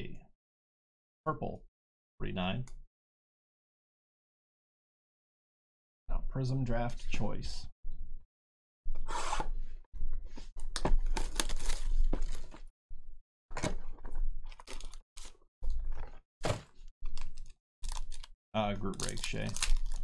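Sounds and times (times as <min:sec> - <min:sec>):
foil packs rustling and crinkling: 0:10.6 - 0:12.7, 0:13.5 - 0:20.0.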